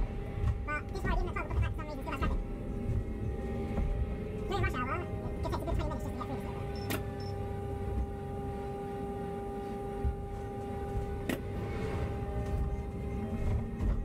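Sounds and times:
bus engine and road rumble: 0.0 - 14.0
high whine: 0.0 - 14.0.

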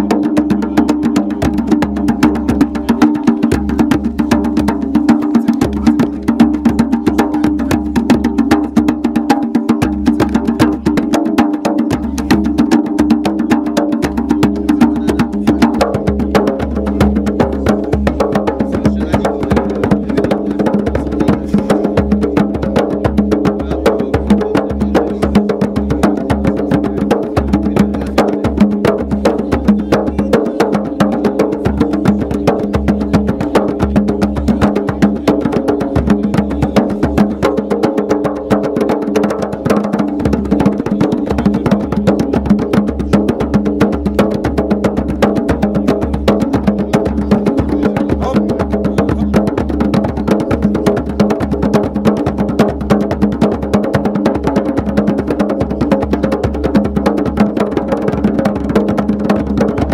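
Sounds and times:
hand drums playing fast rhythm: 0.0 - 59.9.

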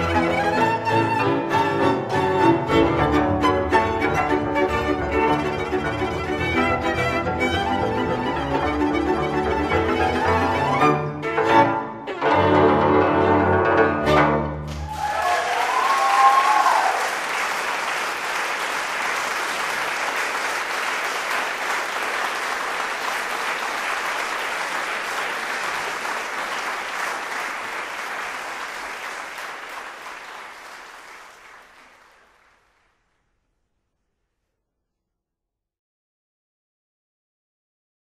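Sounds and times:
audience applause: 14.7 - 33.0.

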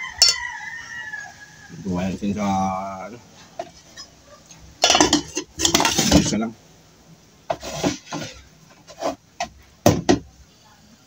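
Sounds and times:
dishes clinking and knocking: 0.2 - 0.4, 4.8 - 6.4, 7.5 - 8.4, 9.4 - 10.3
spoon clinking against pot: 0.2 - 0.4
metal pot lid clattering: 4.8 - 6.3.

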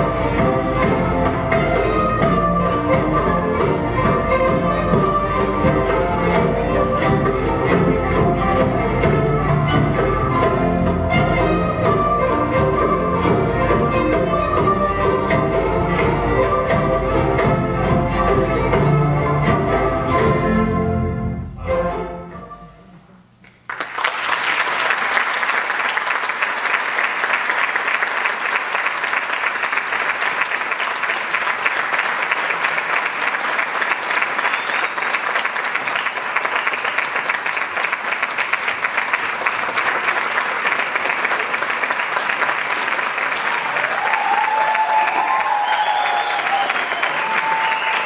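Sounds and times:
audience clapping: 23.4 - 48.0.

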